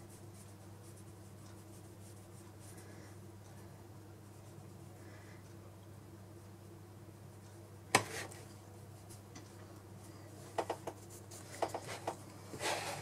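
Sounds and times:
faint hum: 0:00.0 - 0:13.0
light clicks and taps: 0:09.1 - 0:12.4.

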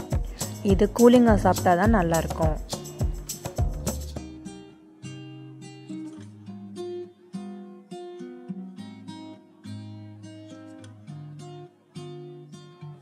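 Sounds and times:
acoustic guitar: 0:00.0 - 0:13.0.

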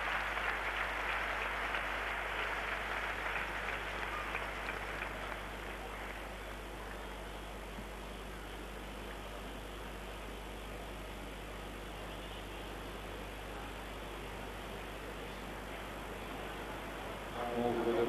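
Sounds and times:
crowd applauding: 0:00.0 - 0:06.5.

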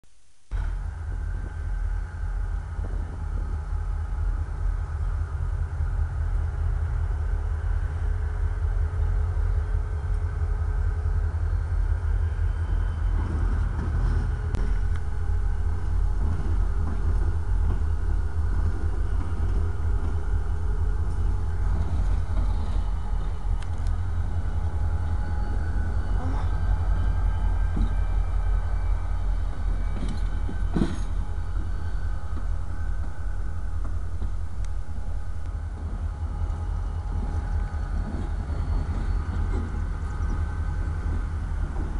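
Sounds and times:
locomotive engine rumble: 0:00.5 - 0:41.9.

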